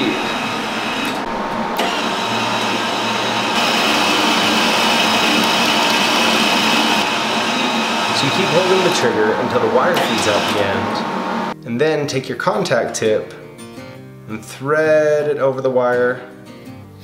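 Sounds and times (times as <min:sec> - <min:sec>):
welder wire-feed motor running: 0:00.0 - 0:11.6.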